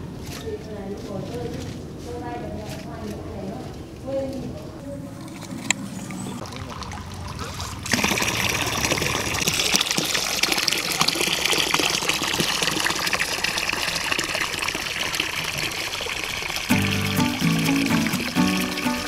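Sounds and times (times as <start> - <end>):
water running and splashing: 5.3 - 19.0.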